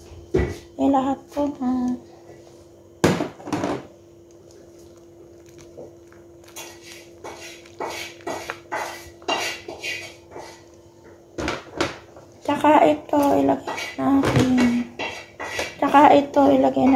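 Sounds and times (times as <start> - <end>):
steady low hum: 0.0 - 16.9
ladle stirring soup in metal pot: 4.3 - 10.8.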